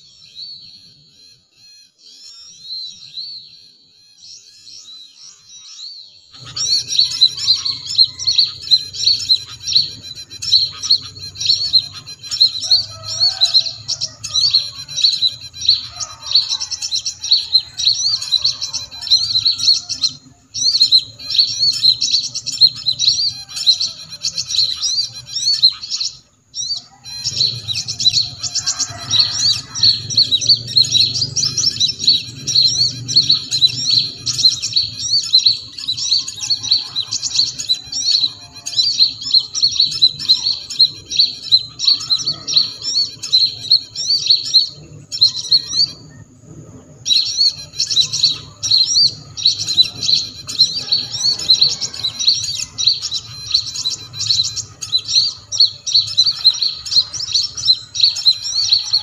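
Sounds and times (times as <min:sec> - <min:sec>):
electronic bird chirping call: 0:00.0 - 0:46.2, 0:47.1 - 0:59.0.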